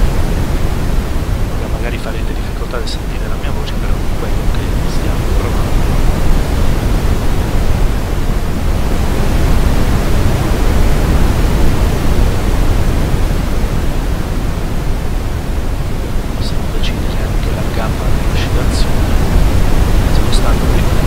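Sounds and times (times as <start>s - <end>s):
deep steady hiss of brown noise: 0.0s - 21.0s.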